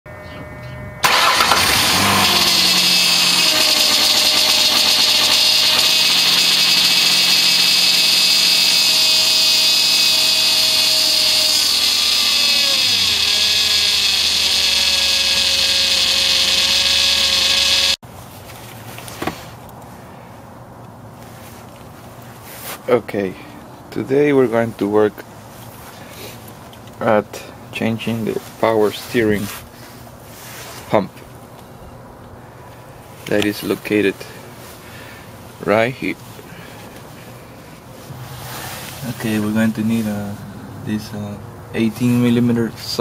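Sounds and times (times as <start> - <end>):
high-pitched whine: 0.1 - 18.0
car engine running: 1.0 - 18.0.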